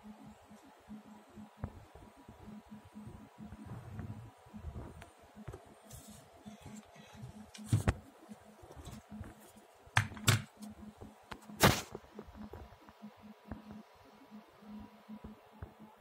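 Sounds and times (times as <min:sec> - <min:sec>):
faint low hum: 0:00.0 - 0:16.0
phone handling knocks and rubs: 0:07.6 - 0:08.0.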